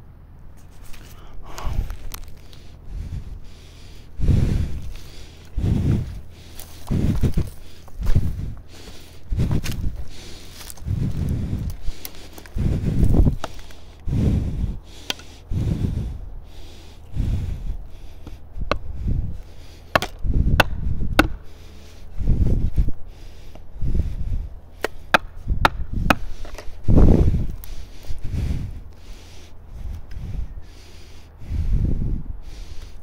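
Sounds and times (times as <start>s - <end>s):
wedge struck with dull thuds: 18.2s - 18.9s, 19.9s - 21.5s, 24.8s - 26.7s.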